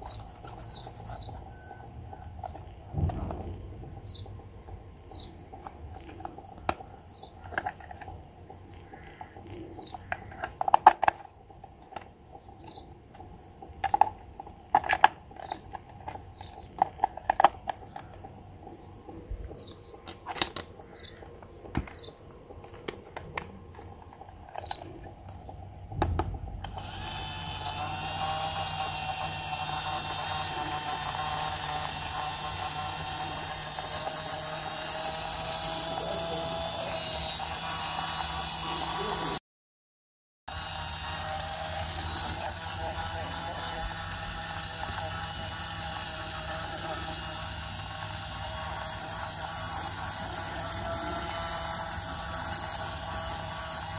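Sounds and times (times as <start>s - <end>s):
small electric motor humming: 0.0s - 4.2s, 5.1s - 39.4s, 40.5s - 53.9s
plastic clicks and knocks: 26.0s - 26.4s.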